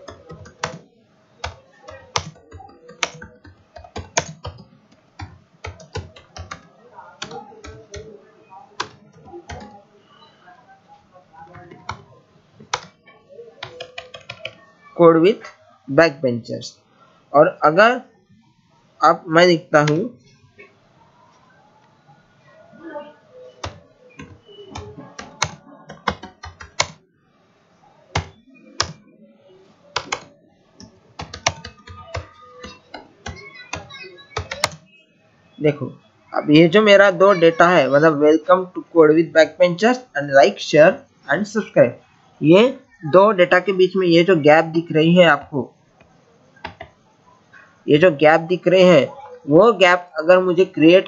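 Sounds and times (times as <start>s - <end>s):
computer keyboard keys clicking: 0.0s - 0.8s, 1.4s - 8.1s, 8.8s - 9.8s, 12.7s - 13.0s, 13.6s - 14.6s, 23.6s - 27.0s, 28.1s - 29.0s, 29.9s - 34.8s.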